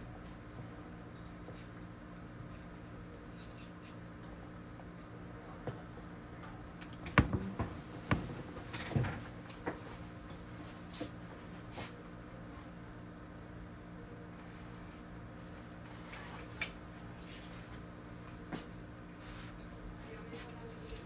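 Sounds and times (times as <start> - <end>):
room hum: 0.0 - 21.0
knocks and clicks of movement: 7.1 - 9.2
light taps: 7.2 - 8.5.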